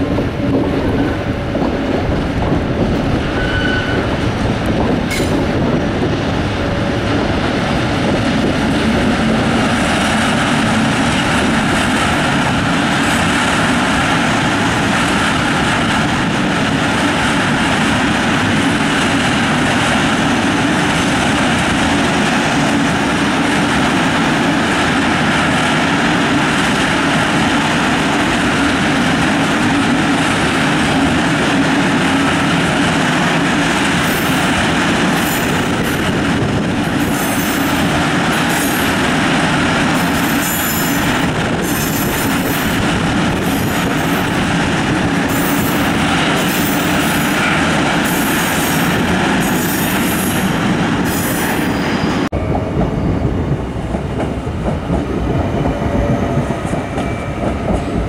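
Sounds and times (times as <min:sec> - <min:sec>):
distant train rumble: 0:00.0 - 0:58.0
freight train wheels rumbling: 0:00.0 - 0:58.0
high wheel squeal: 0:03.2 - 0:04.2.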